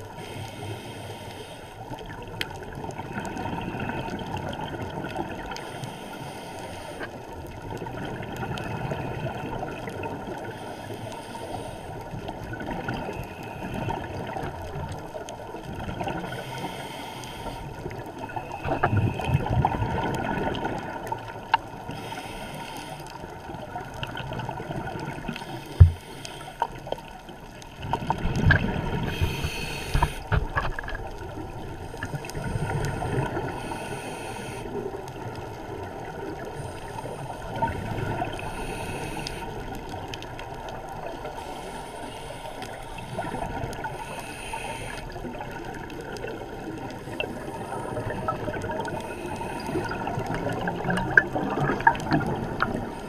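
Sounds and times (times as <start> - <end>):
scuba regulator inhale hiss: 0.2 - 1.8, 5.4 - 7.2, 10.3 - 12.1, 16.2 - 19.5, 21.9 - 23.3, 25.3 - 26.9, 29.0 - 30.4, 31.8 - 34.9, 36.4 - 40.0, 41.3 - 45.6, 46.9 - 50.6.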